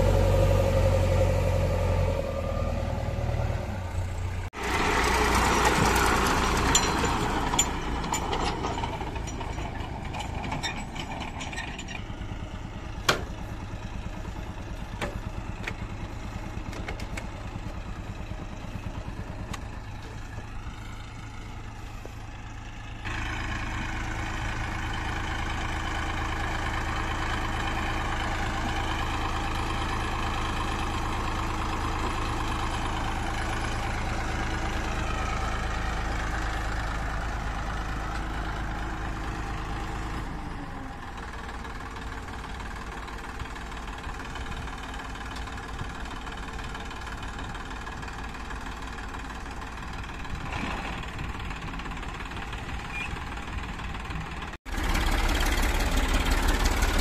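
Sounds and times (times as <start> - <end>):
tractor diesel engine running: 0.0 - 57.0
light clatter and knocks: 5.6 - 13.6.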